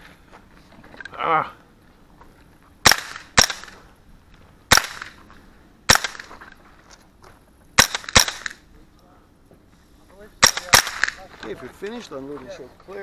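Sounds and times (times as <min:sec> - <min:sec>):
rifle gunshots with echo: 0:02.8 - 0:03.8, 0:04.7 - 0:05.2, 0:05.9 - 0:06.4, 0:07.8 - 0:08.6, 0:10.4 - 0:11.3.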